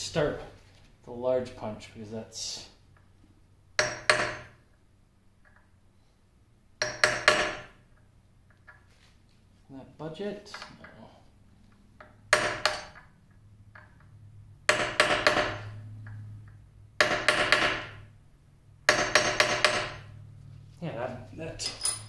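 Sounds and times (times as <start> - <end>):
hammer striking steel punch: 3.8 - 4.5, 6.8 - 7.7, 18.9 - 20.0.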